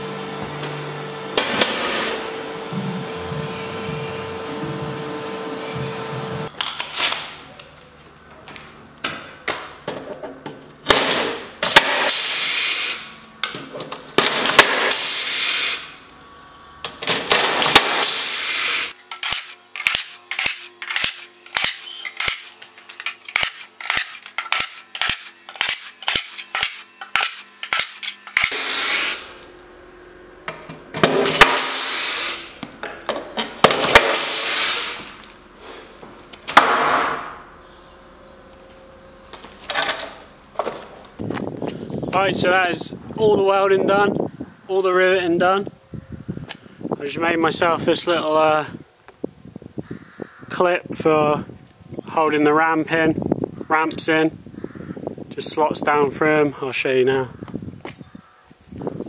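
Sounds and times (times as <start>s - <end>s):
air hiss from tool: 12.1s - 13.1s, 14.9s - 16.0s, 17.9s - 22.6s, 26.6s - 29.3s, 31.4s - 32.5s, 34.1s - 35.9s.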